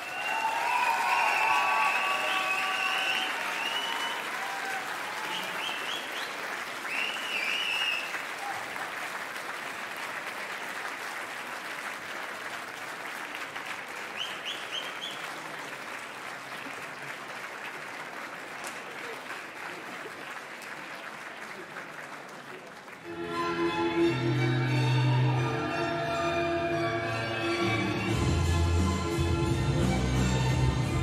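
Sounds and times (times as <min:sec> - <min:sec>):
audience applauding: 0:00.0 - 0:23.2.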